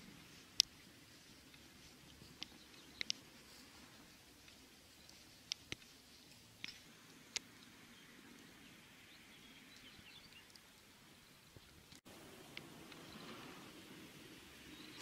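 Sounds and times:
sharp ticks: 1.4 - 3.3
faint bird chirps: 7.7 - 11.5.

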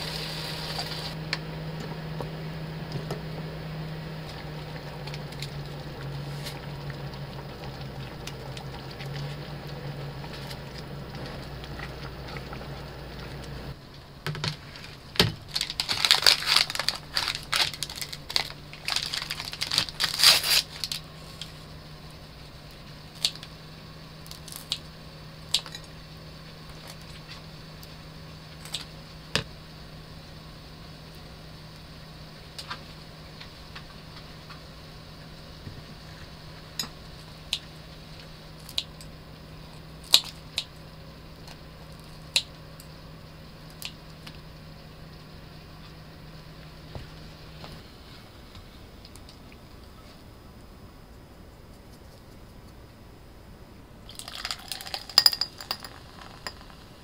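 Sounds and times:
low steady hum: 0.0 - 57.0
paper towel crinkling: 14.6 - 21.4.

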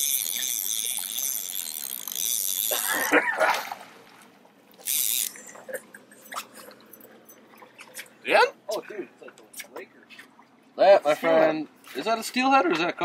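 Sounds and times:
fishing reel ratchet clicking: 0.0 - 3.1, 4.8 - 5.6
water splash: 2.7 - 4.3.

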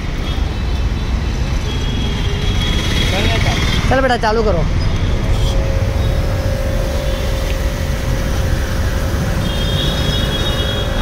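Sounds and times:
pressure washer running: 5.0 - 11.0.

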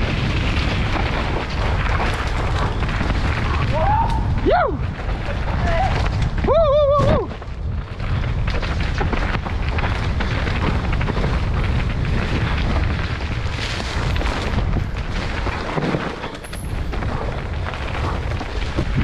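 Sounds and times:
wind buffeting microphone: 0.0 - 16.0, 16.6 - 19.0
bike knocks and rattles: 0.0 - 19.0
tyres rolling over dirt: 0.0 - 19.0.

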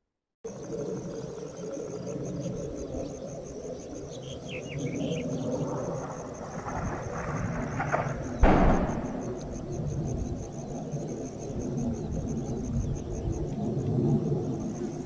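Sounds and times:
crickets chirping: 0.5 - 15.0
distant explosion boom: 7.8 - 10.0.

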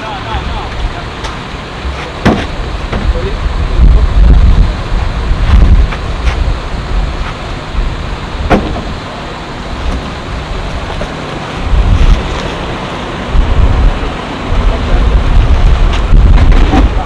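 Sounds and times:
wind buffeting microphone: 2.4 - 9.0, 9.8 - 17.0
sharp knock: 8.5 - 8.9.

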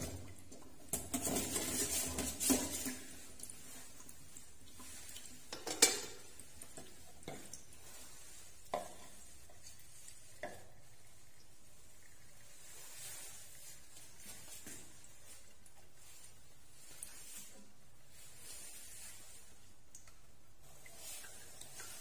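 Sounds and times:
dishes knocking and clattering: 5.5 - 6.3.

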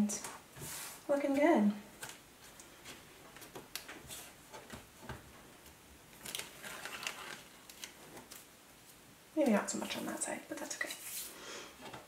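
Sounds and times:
tape peeling off paper: 6.1 - 8.5.

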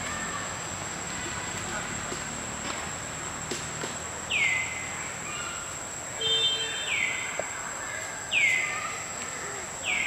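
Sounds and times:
bird chirps: 4.3 - 9.1, 9.8 - 10.0.

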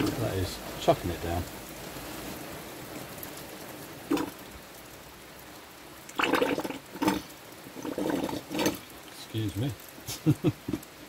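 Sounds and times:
heavy rain hiss: 0.0 - 11.0
oil glugging from bottle: 4.1 - 4.4, 6.1 - 9.2.

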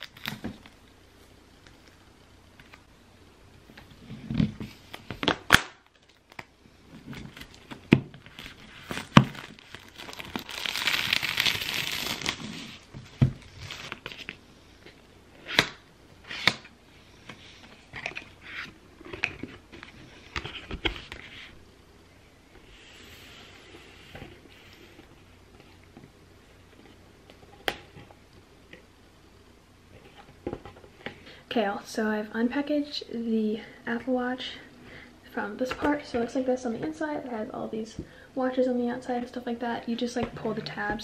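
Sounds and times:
paper tearing and crinkling: 8.3 - 12.9.

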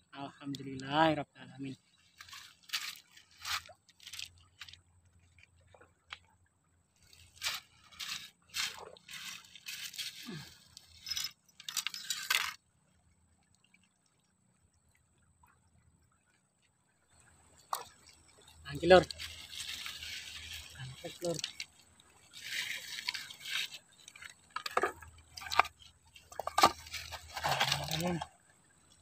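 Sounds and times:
scraping and crunching on wet gravel: 2.1 - 5.5, 7.0 - 12.6, 18.9 - 28.3.

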